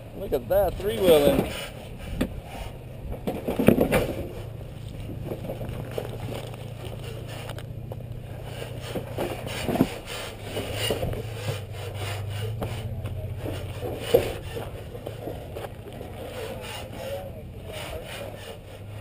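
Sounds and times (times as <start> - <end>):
engine running at low revs: 0.0 - 19.0
tyres crunching on rock: 3.1 - 17.0.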